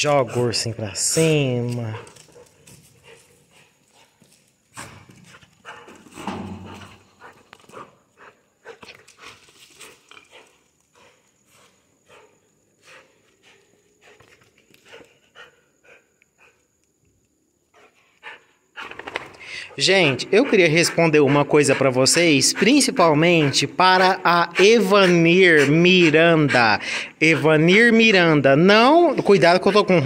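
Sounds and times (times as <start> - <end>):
dog claws clicking on concrete: 1.6 - 6.1.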